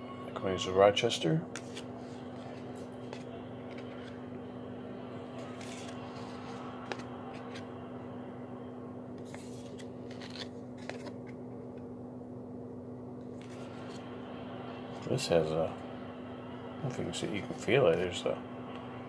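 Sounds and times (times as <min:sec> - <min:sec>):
steady low hum: 0:00.0 - 0:19.0
cards clicking and rustling: 0:01.5 - 0:04.2, 0:05.3 - 0:07.7, 0:09.2 - 0:11.4.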